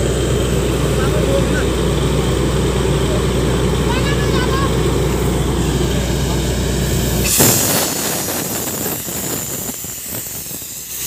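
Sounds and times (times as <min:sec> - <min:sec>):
drilling rig engine hum: 0:00.0 - 0:11.0
loud hiss with rattling: 0:05.0 - 0:11.0.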